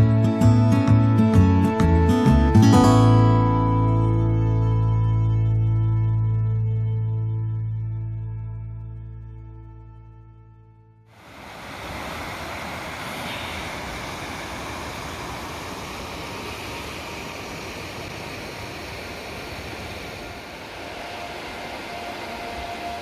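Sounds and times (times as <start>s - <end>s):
white water roaring: 11.1s - 23.0s.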